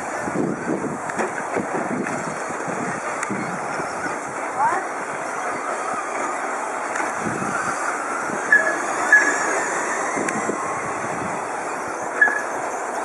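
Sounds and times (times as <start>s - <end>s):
rc trucks racing on dirt: 0.0s - 13.0s
short high beeps: 8.5s - 9.5s, 12.2s - 12.6s.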